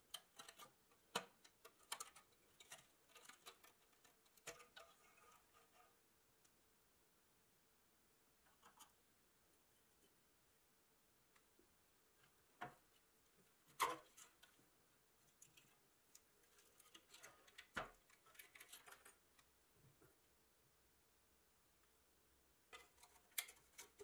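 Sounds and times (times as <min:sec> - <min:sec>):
metal toy parts clicking and scraping: 0:00.1 - 0:05.8, 0:16.5 - 0:19.2, 0:22.8 - 0:24.0.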